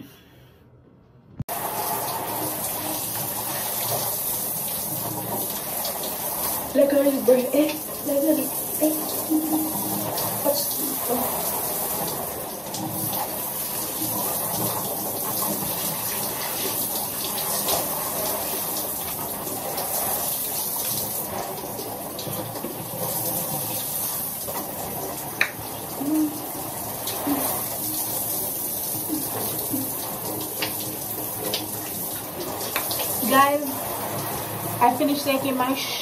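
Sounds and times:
shower water spraying: 1.5 - 36.0.

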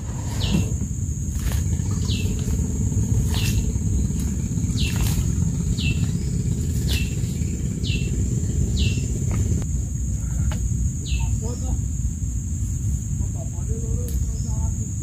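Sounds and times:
bird calling: 0.0 - 9.6
low rumble: 0.0 - 13.9.

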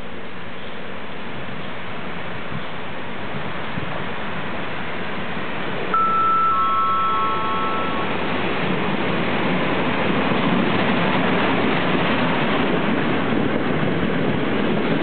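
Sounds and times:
train rumbling: 0.0 - 15.0
descending chime notes: 5.9 - 8.3.

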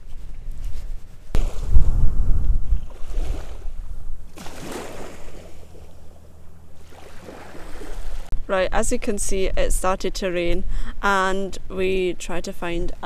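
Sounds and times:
gusty wind buffeting microphone: 0.0 - 4.4.

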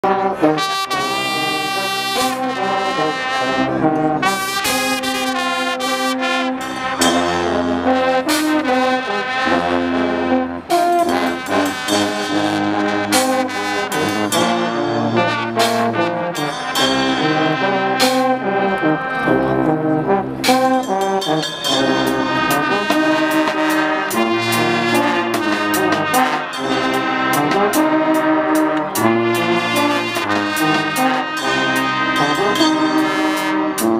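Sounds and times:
brass band playing loudly: 0.0 - 33.9.

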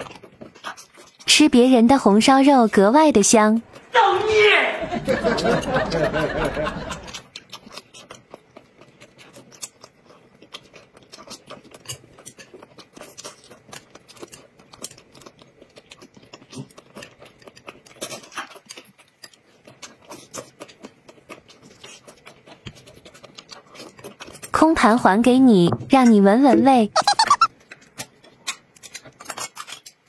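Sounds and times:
person chewing with mouth smacks: 0.0 - 1.3, 3.7 - 3.9, 5.3 - 24.6, 27.0 - 30.0.

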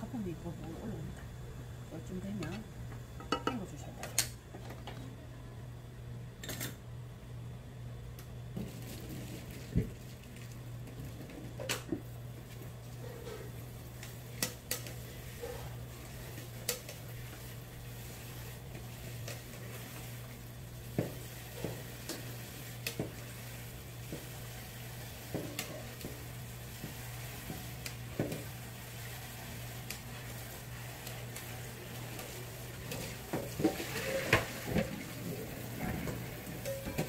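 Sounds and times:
bowls and utensils clinking: 3.2 - 3.6.

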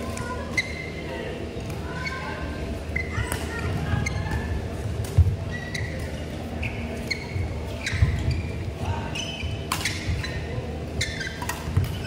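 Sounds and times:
shoes squeaking on court floor: 0.4 - 1.1, 2.0 - 12.0
racket hitting shuttlecock: 9.7 - 10.3.

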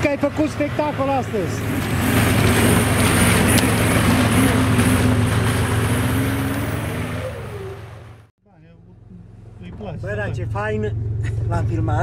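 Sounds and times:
buggy engine passing: 0.0 - 8.3.

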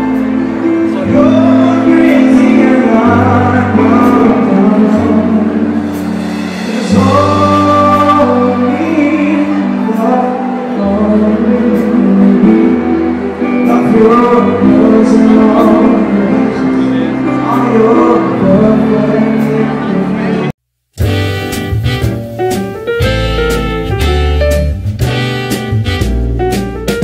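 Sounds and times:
person singing: 0.0 - 20.5
piano: 0.0 - 27.0
sustained bass notes: 0.0 - 27.0.

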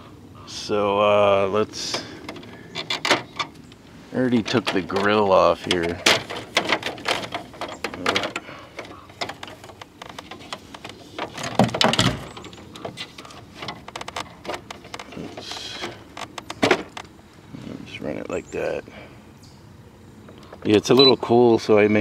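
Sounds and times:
plastic panel clicking and rattling: 1.8 - 17.1.

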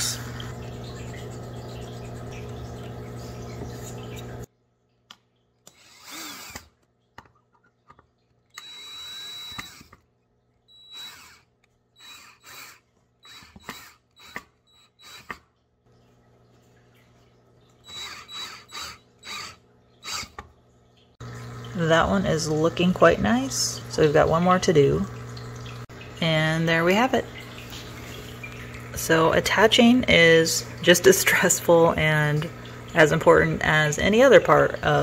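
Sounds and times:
cordless drill driving screws: 5.7 - 6.8, 8.5 - 10.0, 10.7 - 15.4, 17.8 - 20.4.

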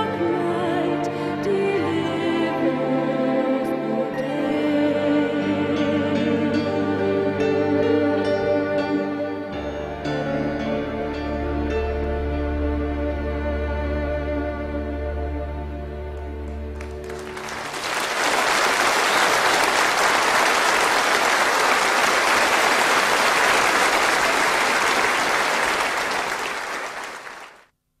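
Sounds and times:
audience applause: 16.4 - 27.7.

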